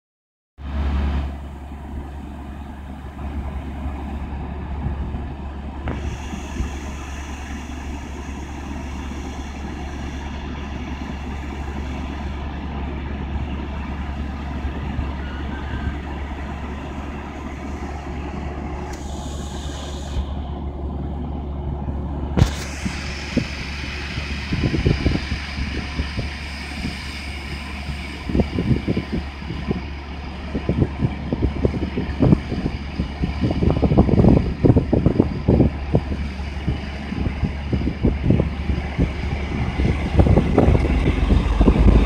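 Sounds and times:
train engine idling: 0.6s - 42.0s
short hiss: 22.4s - 24.0s.

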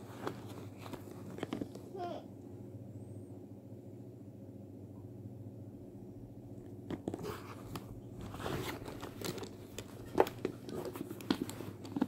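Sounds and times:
handbag rustling and clicking: 7.0s - 12.0s.

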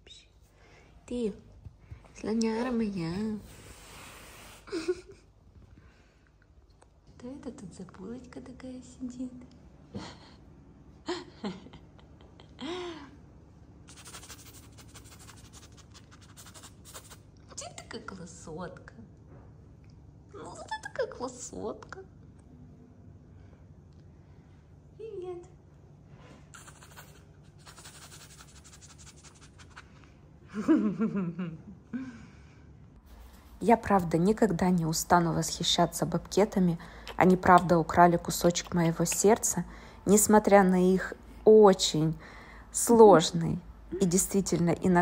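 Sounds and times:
rapid scratching and rustling: 13.9s - 17.2s.

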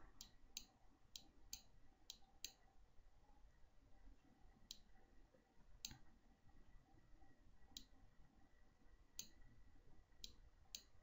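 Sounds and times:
faint computer mouse clicks: 0.2s - 2.6s, 4.6s - 4.9s, 5.8s - 6.1s, 7.7s - 8.0s, 9.2s - 9.4s, 10.2s - 11.0s.

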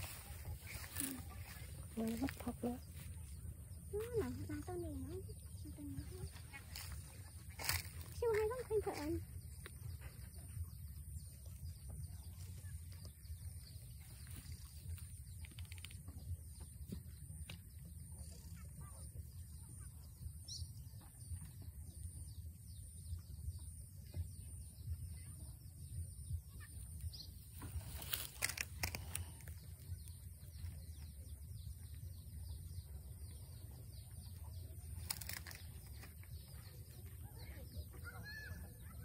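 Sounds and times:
faint bird chirps: 0.0s - 39.0s.

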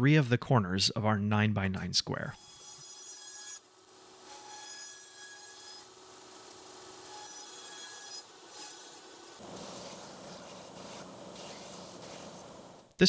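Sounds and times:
bandsaw cutting wood: 2.6s - 12.9s.

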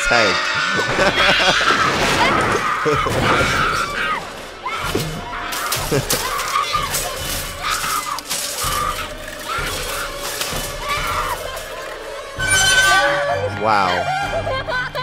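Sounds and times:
metal cart smashing against car: 1.0s - 13.1s
glass shattering: 1.2s - 13.1s
woman screaming: 14.1s - 15.0s.

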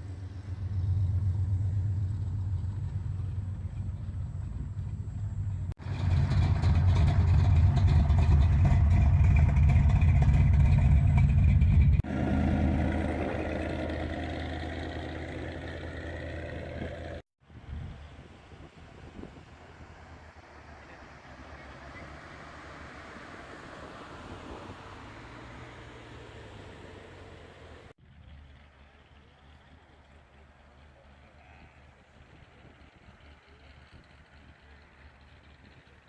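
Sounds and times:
pickup driving off: 0.0s - 17.2s, 17.9s - 36.0s
pickup engine idling: 0.0s - 17.2s, 27.0s - 36.0s
car passing loudly: 12.0s - 17.2s, 18.2s - 28.0s.

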